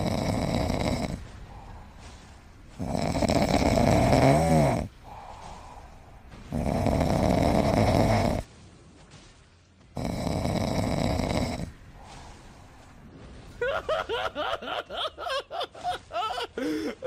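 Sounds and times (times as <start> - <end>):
person snoring: 0.0 - 1.2, 2.8 - 5.3, 6.5 - 8.4, 10.0 - 11.7.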